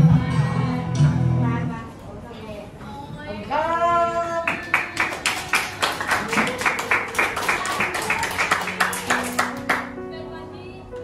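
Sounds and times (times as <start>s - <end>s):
group clapping in rhythm: 4.5s - 10.0s.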